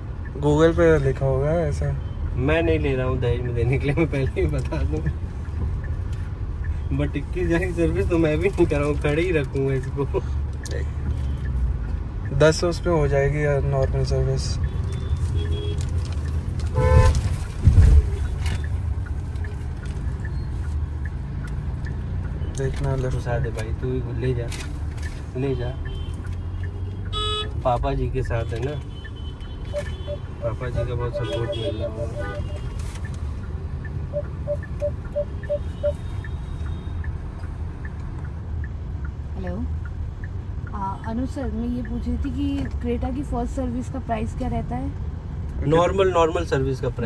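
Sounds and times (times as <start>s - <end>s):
car road and engine rumble: 0.0s - 47.0s
turn signal ticking: 0.0s - 47.0s
car cabin road rumble: 13.5s - 22.0s
car horn: 16.7s - 17.2s, 27.1s - 27.6s, 28.4s - 32.8s
parking sensor beeps: 17.9s - 22.0s, 28.9s - 37.2s.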